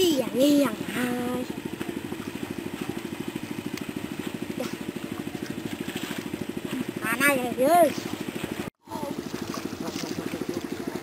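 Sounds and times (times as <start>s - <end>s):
child's voice: 0.0s - 1.5s, 7.0s - 8.0s
small engine chugging: 0.0s - 11.0s.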